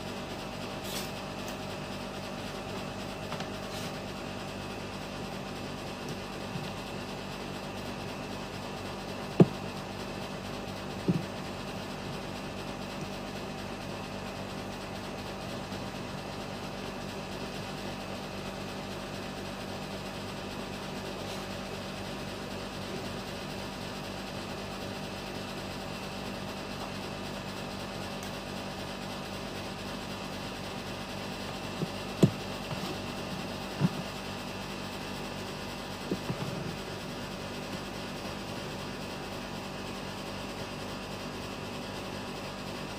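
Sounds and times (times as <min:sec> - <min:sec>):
machine hum: 0:00.0 - 0:17.4, 0:28.5 - 0:40.3
capacitor tapping on mat: 0:09.4 - 0:09.7, 0:11.0 - 0:11.4, 0:31.8 - 0:33.0, 0:33.8 - 0:34.1.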